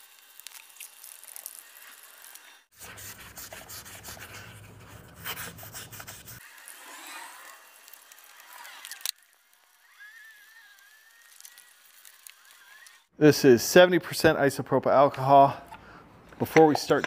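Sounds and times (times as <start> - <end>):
scuff pad scratching paint: 2.7 - 8.0.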